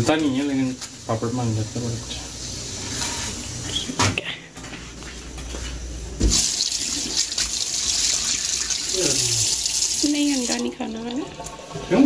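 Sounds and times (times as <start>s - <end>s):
water running into sink: 6.2s - 12.0s.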